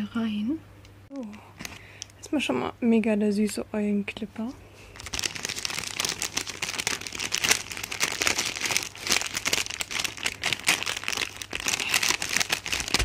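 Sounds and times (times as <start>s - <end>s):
paper bag crinkling: 4.9s - 13.0s.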